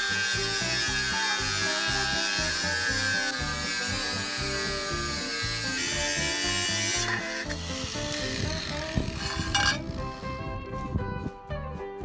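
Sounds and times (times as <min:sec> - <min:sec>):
angle grinder cutting metal tube: 0:00.0 - 0:10.6
background music with bass line: 0:00.0 - 0:12.0.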